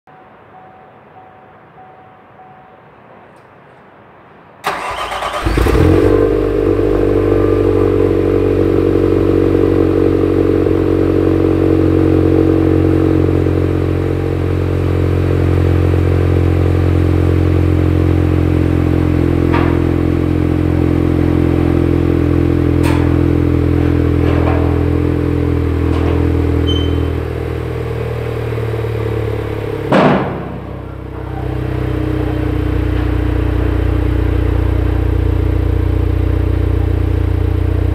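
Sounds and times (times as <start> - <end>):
car engine idling: 4.7 - 37.9
sharp knock: 29.9 - 30.8.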